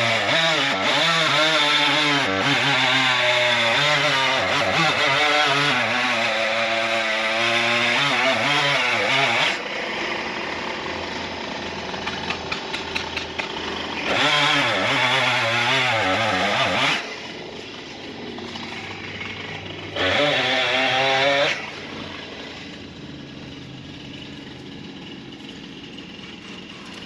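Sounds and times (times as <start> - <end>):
chainsaw cutting wood: 0.0 - 27.0.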